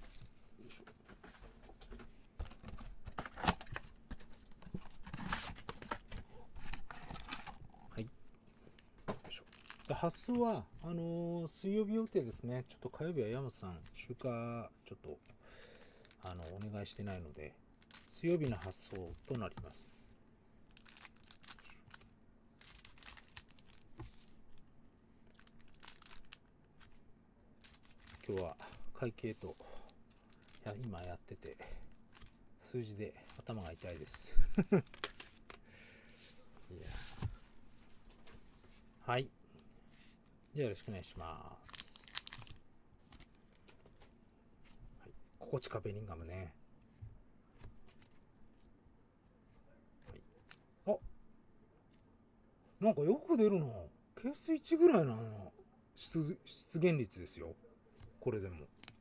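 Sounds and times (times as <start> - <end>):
foil wrappers crinkling: 9.4 - 10.4, 15.6 - 19.6, 20.7 - 24.2, 25.2 - 27.0, 27.6 - 32.4, 33.1 - 35.6, 41.6 - 43.7.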